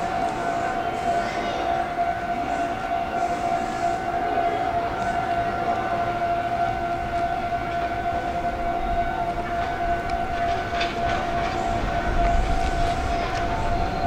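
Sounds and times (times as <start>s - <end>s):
high electrical whine: 0.0s - 14.0s
low rumble of approaching train: 0.0s - 14.0s.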